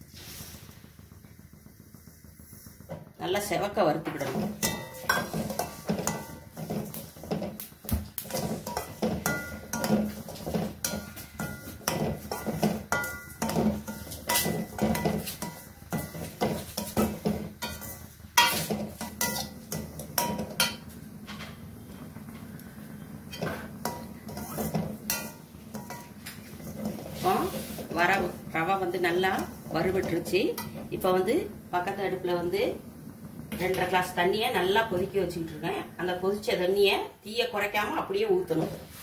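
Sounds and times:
steel spoon scraping a pan: 4.1s - 7.6s, 8.2s - 21.0s, 23.3s - 31.2s.

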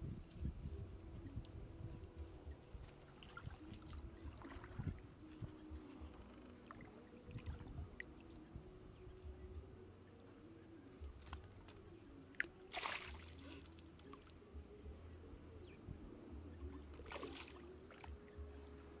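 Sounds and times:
water sloshing and dripping: 2.6s - 8.5s, 12.3s - 14.4s, 16.6s - 18.4s
short water splashes: 2.9s - 5.6s, 12.4s - 14.3s, 16.9s - 18.1s.

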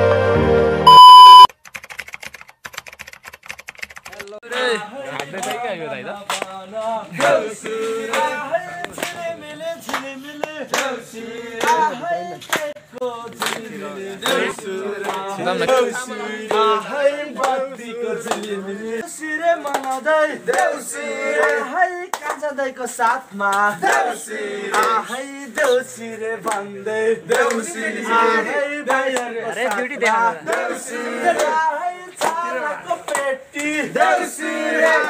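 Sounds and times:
hand claps: 5.2s - 5.6s, 6.2s - 11.0s, 11.6s - 16.7s, 17.4s - 17.6s, 18.2s - 18.6s, 19.6s - 20.7s, 21.4s - 22.5s, 24.7s - 26.7s, 27.3s - 27.7s, 28.8s - 30.7s, 31.3s - 32.4s, 33.0s - 33.8s
men singing in chorus: 6.4s - 35.0s.

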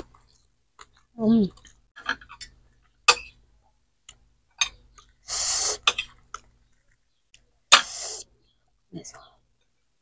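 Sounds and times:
sharp hiss of breath: 5.3s - 5.8s, 7.7s - 8.3s.

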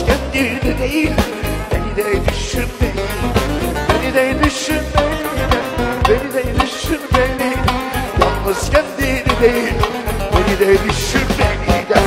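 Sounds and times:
lively band music: 0.0s - 12.0s
quick drum beat: 2.3s - 12.0s.

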